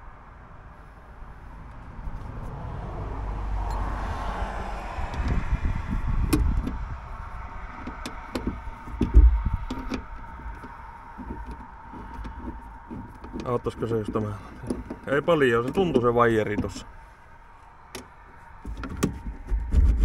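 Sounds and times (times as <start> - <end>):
steady low rumble: 0.0 - 20.0
dull thump: 7.8 - 13.5.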